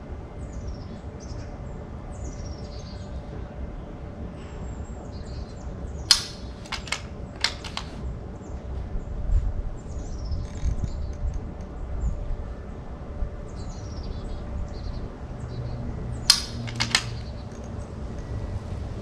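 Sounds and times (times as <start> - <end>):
rifle shots cracking: 6.1 - 8.0, 16.3 - 17.3.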